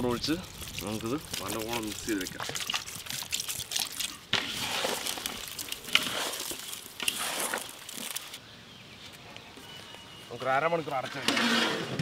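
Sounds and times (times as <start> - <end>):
wet squelching of mixing by hand: 0.0 - 8.4
liquid splashing into pot: 0.6 - 8.2.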